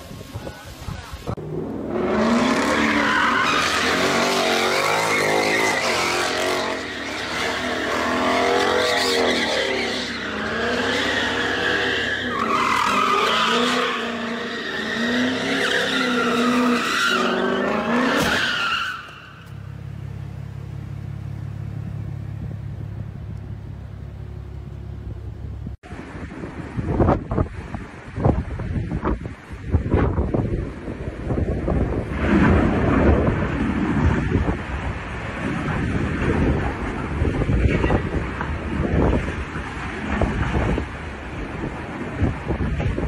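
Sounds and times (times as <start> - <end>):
car engine revving: 1.4 - 18.6
tyres squealing: 2.4 - 19.6.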